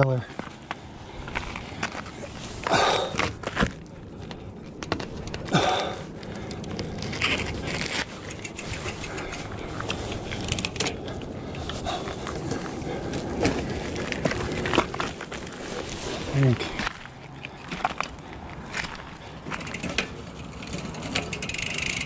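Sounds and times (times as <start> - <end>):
person breathing hard: 0.8 - 3.4, 5.4 - 7.8, 10.9 - 14.1
bicycle derailleur clicks and rattles: 4.2 - 11.7, 19.4 - 22.0.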